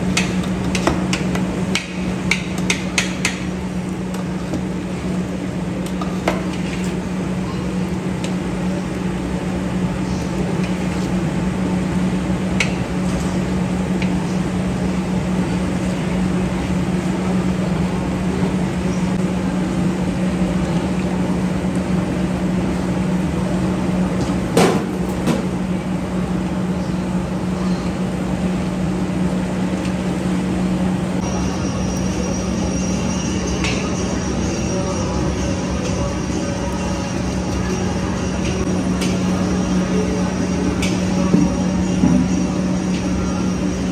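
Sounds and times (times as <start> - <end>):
kitchen range and ventilation hum: 0.0 - 43.9.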